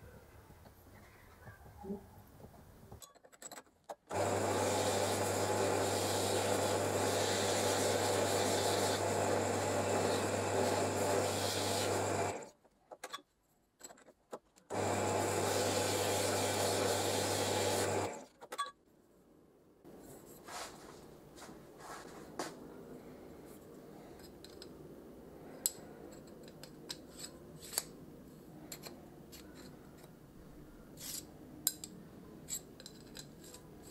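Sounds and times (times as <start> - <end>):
drill press motor hum: 4.1 - 12.5, 14.7 - 18.2
sandpaper rasping on tube: 4.5 - 12.1, 15.4 - 18.0.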